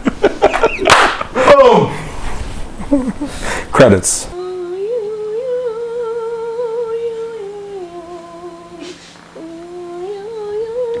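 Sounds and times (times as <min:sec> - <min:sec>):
person humming a slow tune: 0:04.4 - 0:11.0.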